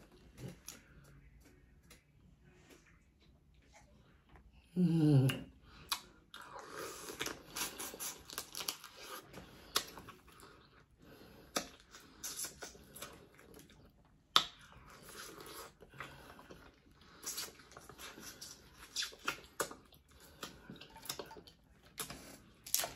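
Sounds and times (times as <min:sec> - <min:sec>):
chewing: 0:05.3 - 0:22.9
crab shells cracking and crunching: 0:07.0 - 0:10.1, 0:21.9 - 0:22.9.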